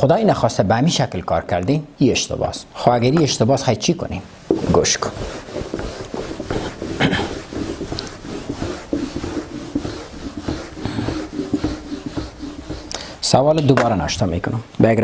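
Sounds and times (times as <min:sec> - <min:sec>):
eraser wiping a whiteboard: 0:04.4 - 0:13.7.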